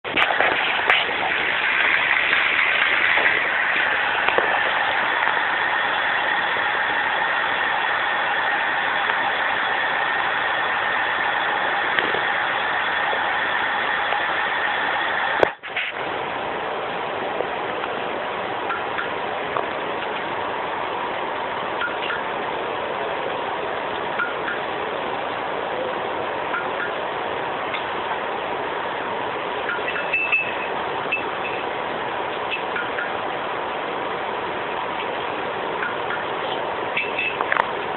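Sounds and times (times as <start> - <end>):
bicycle wheel whirring: 0.0 - 16.4.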